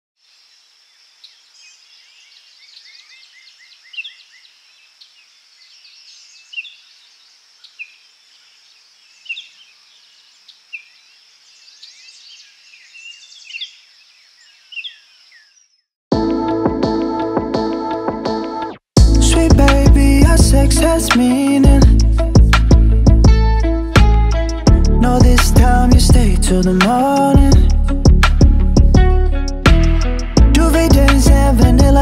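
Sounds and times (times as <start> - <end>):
birds chirping and calling: 1.0 - 15.8
loud music: 16.1 - 32.0.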